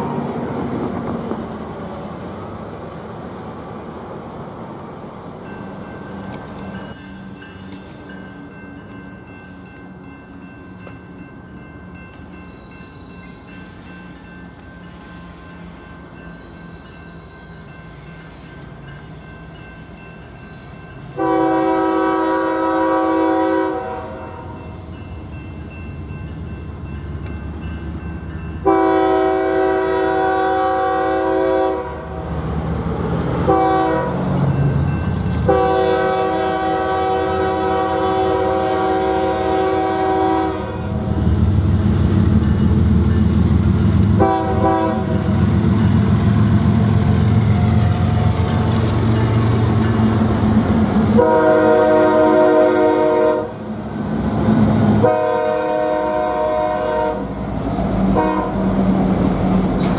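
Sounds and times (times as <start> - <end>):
diesel locomotive rumble: 0.0 - 59.9
locomotive air horn blasts: 21.2 - 24.6, 28.6 - 32.1, 33.4 - 34.3, 35.4 - 41.1, 44.2 - 45.4, 51.1 - 53.6, 55.0 - 57.3, 58.1 - 58.7.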